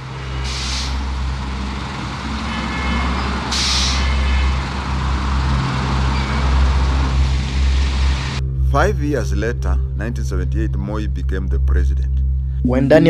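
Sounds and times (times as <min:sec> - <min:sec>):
air brakes hissing: 0:00.0 - 0:08.4
bus engine droning: 0:00.0 - 0:13.0.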